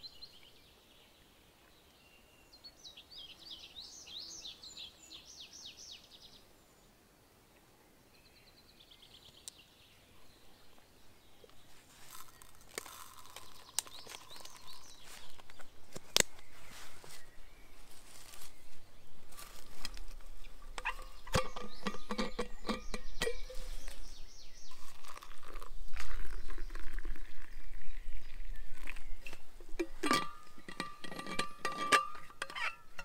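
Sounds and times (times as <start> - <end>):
liquid pouring into metal cup: 12.1 - 14.7, 24.7 - 29.0, 29.8 - 32.7
flask clicks and scrapes: 12.1 - 16.5, 20.7 - 24.0, 24.7 - 27.4, 28.8 - 33.0.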